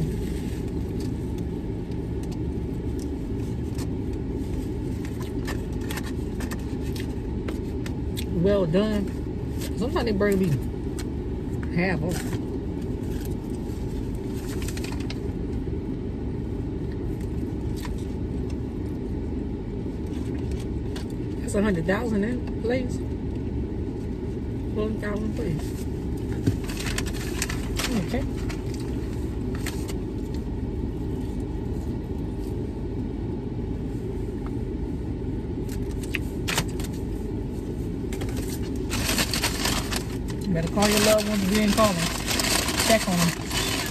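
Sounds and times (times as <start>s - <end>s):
low rumble in car cabin: 0.0s - 43.9s
paper bag crinkling: 38.2s - 43.9s.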